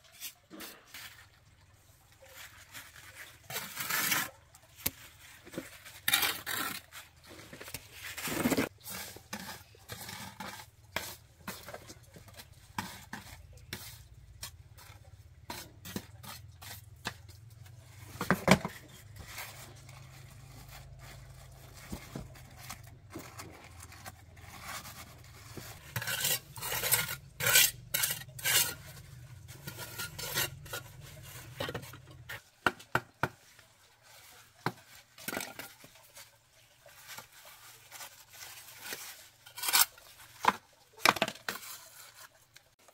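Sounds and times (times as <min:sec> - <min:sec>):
metal objects clinking and scraping: 0:02.4 - 0:32.5.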